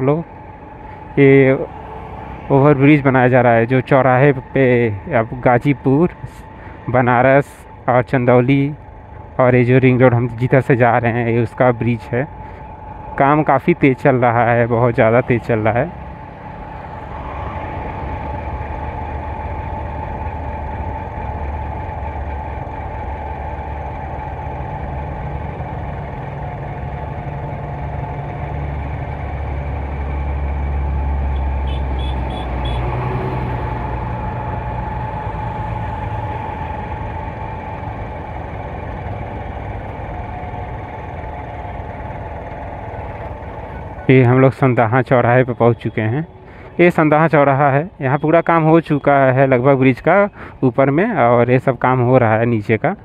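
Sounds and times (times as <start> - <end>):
road and wind noise: 0.0 - 53.0
truck passing rumble: 0.0 - 53.0
motorcycle engine running: 14.5 - 32.8, 33.6 - 44.1.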